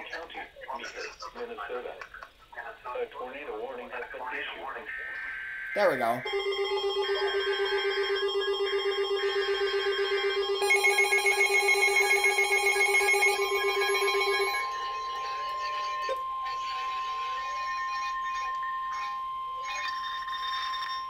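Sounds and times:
steady warning alarm tone: 0:05.4 - 0:21.0
fast-pulsing alarm beep: 0:05.7 - 0:20.5
higher pulsing alarm: 0:05.8 - 0:19.9.

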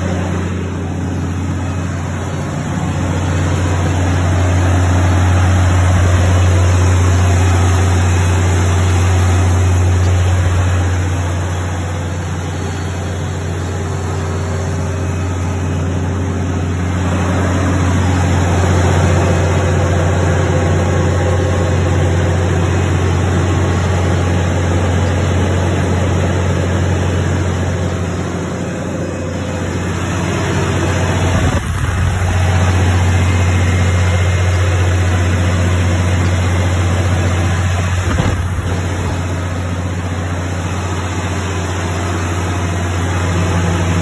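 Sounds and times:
diesel generator engine drone: 0:00.0 - 0:44.0.

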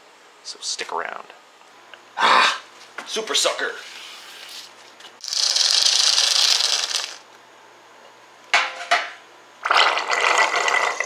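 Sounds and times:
suction pump rattling hiss: 0:05.2 - 0:07.2.

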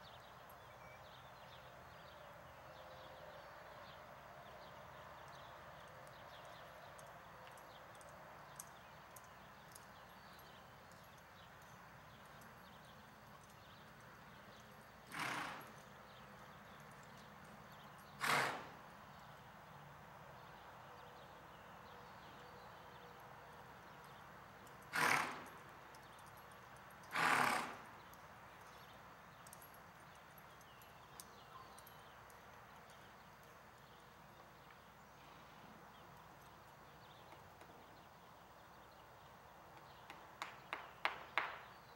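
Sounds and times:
horse walking on soft dirt: 0:05.4 - 0:19.7
horse snorting: 0:15.1 - 0:15.8, 0:18.2 - 0:18.8, 0:24.9 - 0:25.6, 0:27.1 - 0:27.9.

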